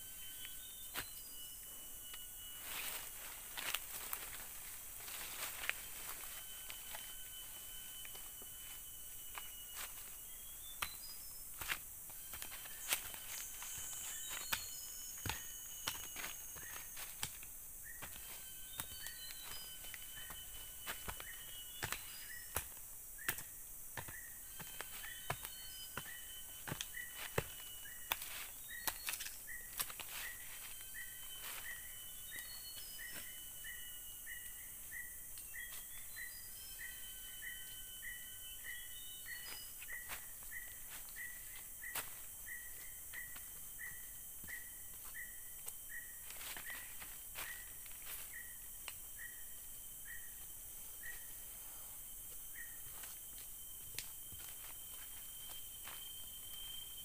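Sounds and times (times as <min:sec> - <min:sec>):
birds calling: 0:00.0 - 0:57.0
steady high hiss: 0:00.0 - 0:57.0
digging tool chopping into soil: 0:20.2 - 0:30.0.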